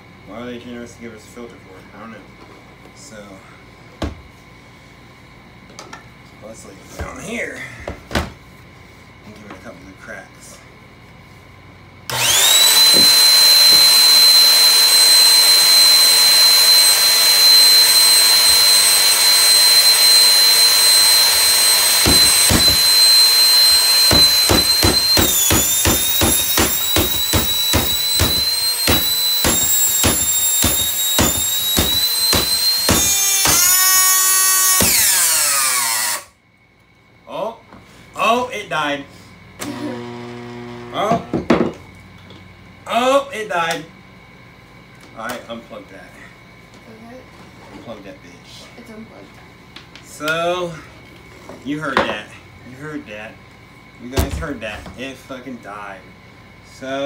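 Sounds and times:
hammer blows on vacuum: 12.1 - 33.9, 34.7 - 35.2
vacuum motor whining: 12.1 - 36.3, 39.6 - 41.2.

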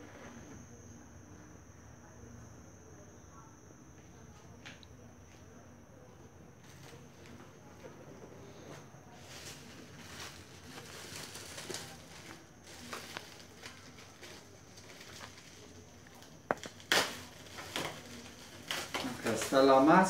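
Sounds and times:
plastic packaging crinkling: 9.2 - 19.7.

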